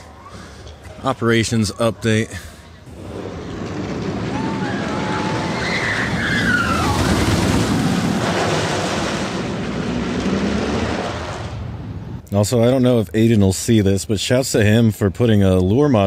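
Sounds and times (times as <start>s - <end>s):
roller coaster rumble: 0.0s - 12.2s
high squeals: 2.9s - 8.8s.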